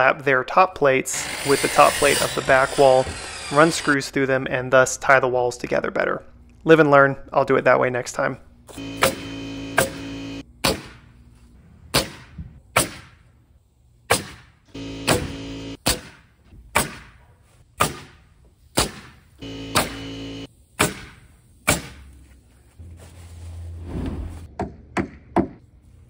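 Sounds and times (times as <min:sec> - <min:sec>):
steady hum: 0:08.4 - 0:12.0, 0:14.7 - 0:15.8, 0:19.4 - 0:20.6
nail gun firing: 0:14.1 - 0:17.1, 0:18.8 - 0:20.1.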